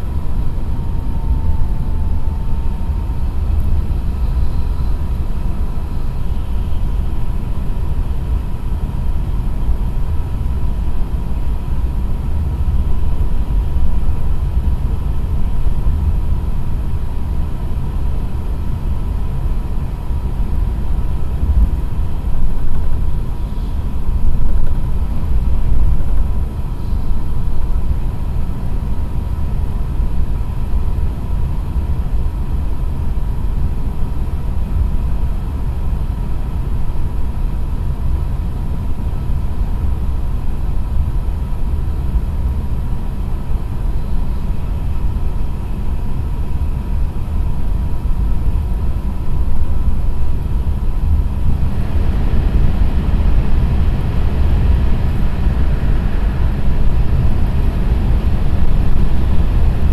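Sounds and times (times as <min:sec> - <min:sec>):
faint high whine: 0:00.0 - 0:59.9
train running gear rumble: 0:00.0 - 0:59.9.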